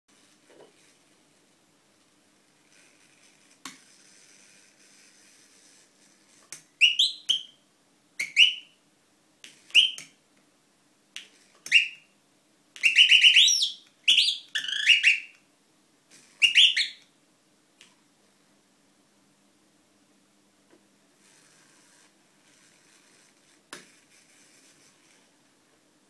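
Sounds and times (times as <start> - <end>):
faint steady hum: 0.1 - 26.0
bird automaton chirping: 12.8 - 15.3, 16.4 - 17.0.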